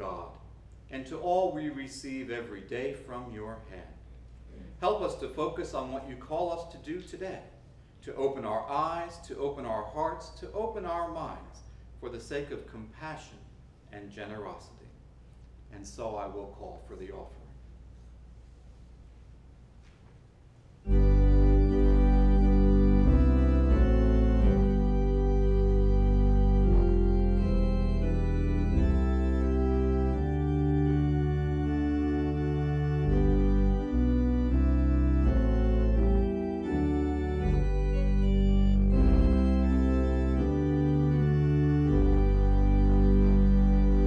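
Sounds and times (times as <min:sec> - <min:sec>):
organ music with held chords: 0:00.0 - 0:00.5, 0:20.8 - 0:44.0.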